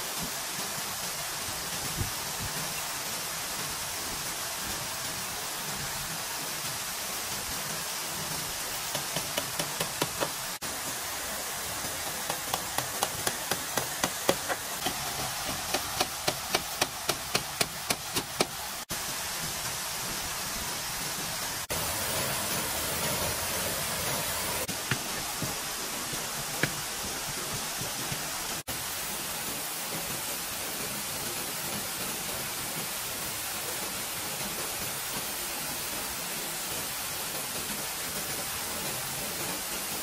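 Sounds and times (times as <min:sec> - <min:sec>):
steady rushing noise: 0:08.2 - 0:30.9
quick evenly spaced knocks: 0:08.8 - 0:10.6, 0:12.0 - 0:18.6.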